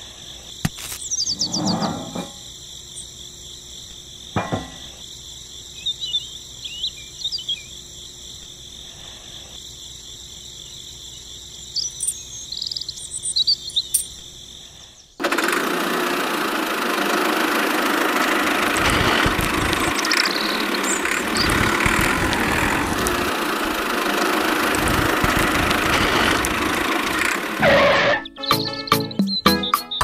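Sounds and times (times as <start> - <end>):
tractor engine running: 15.2 - 28.2.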